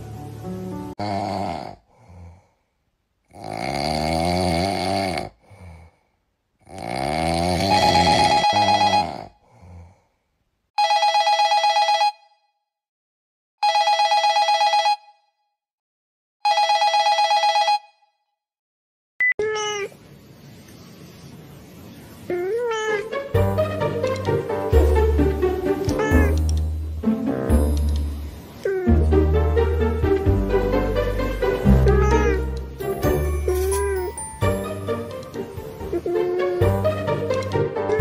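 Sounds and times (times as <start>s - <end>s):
electronic telephone ringing: 7.6s - 9.2s, 10.8s - 12.4s, 13.6s - 15.2s, 16.4s - 18.1s.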